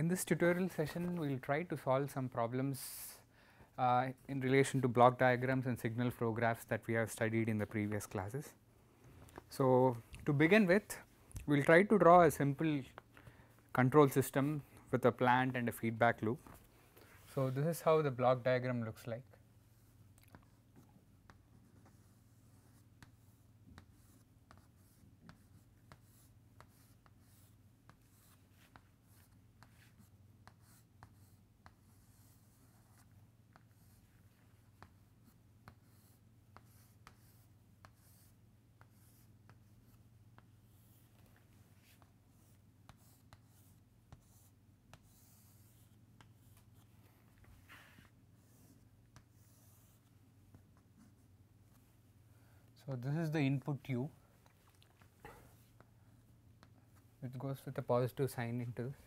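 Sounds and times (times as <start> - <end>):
chalk tapping and scratching: 19.7 - 51.9, 54.4 - 57.1.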